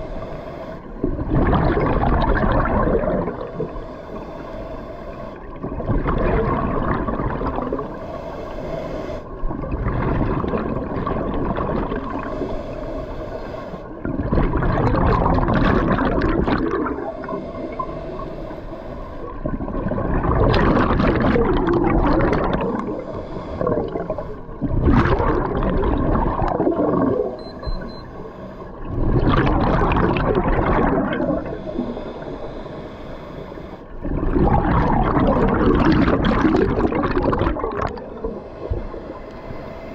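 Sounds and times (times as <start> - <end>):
diver exhaling bubbles underwater: 1.0 - 3.7, 5.6 - 7.9, 9.5 - 12.5, 14.0 - 17.8, 19.3 - 27.4, 28.8 - 31.9, 33.9 - 39.0.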